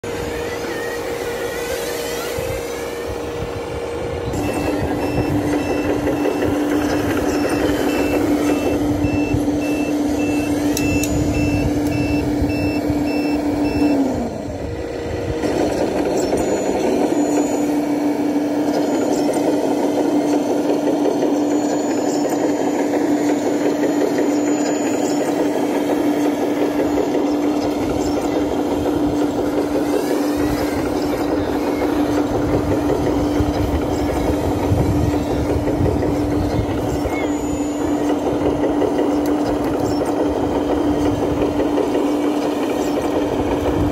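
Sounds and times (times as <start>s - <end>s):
bulldozer drive and hydraulics hum: 0.0s - 43.9s
reversing beep: 4.3s - 14.5s, 15.5s - 43.3s.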